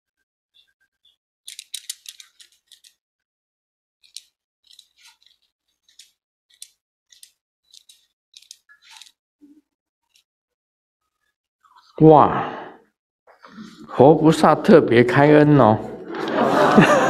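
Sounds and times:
paper crinkling: 0:04.0 - 0:09.2.

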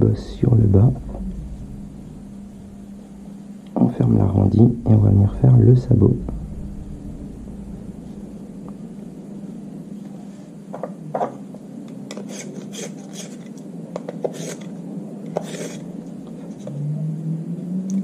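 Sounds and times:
pencil being sharpened: 0:12.2 - 0:13.5, 0:15.4 - 0:15.8.

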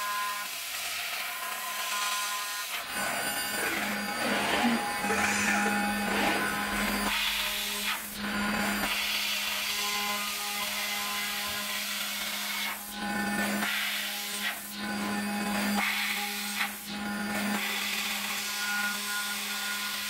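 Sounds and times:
machine spindle cutting metal: 0:02.6 - 0:09.2.

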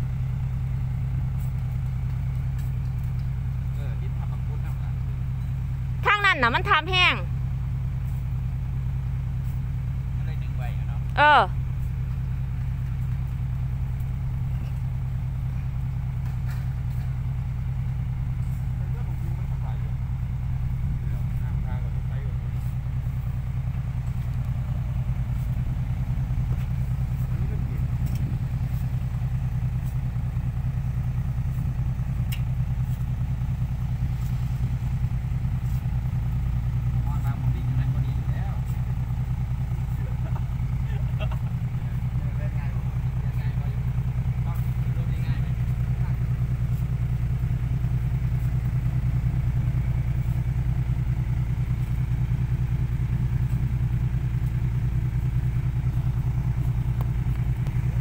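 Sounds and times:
diesel truck engine idling: 0:00.0 - 0:58.0
faint click: 0:32.3 - 0:32.5.

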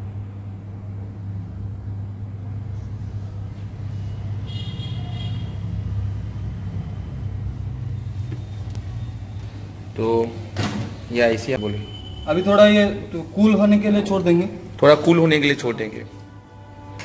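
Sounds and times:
faint high whine: 0:11.2 - 0:15.2.

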